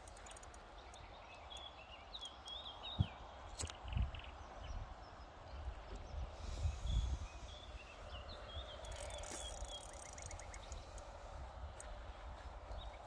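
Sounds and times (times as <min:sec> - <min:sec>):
small birds chirping: 0:00.0 - 0:13.0
bird trill: 0:08.5 - 0:10.9.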